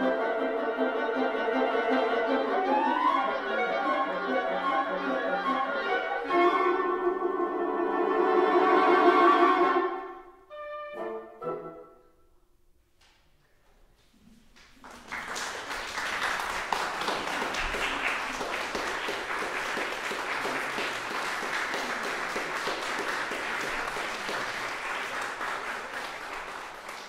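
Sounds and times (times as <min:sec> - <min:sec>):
audience applauding: 0:14.6 - 0:27.0.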